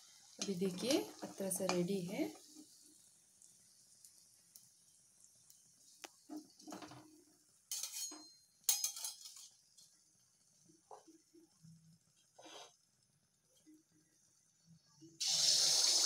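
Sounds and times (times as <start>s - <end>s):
oil sizzling: 0.0s - 16.0s
metal spoon clinking in pan: 7.7s - 9.9s.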